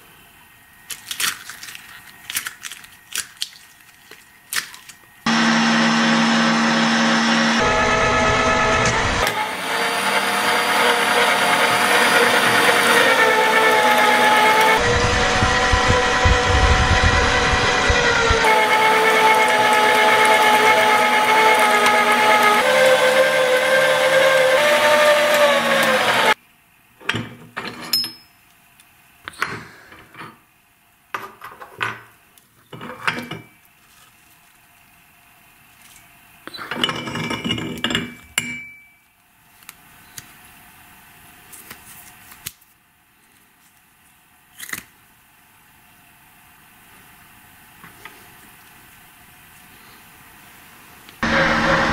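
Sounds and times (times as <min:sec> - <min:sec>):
meat grinder motor whirring: 0:05.3 - 0:26.4, 0:51.2 - 0:51.9.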